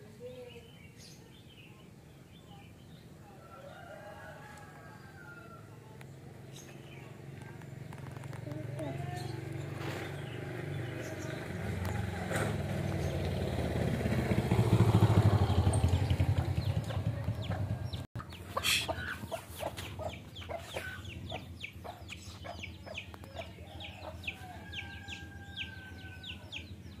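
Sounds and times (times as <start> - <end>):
engine passing with pulsing drone: 5.2 - 27.0.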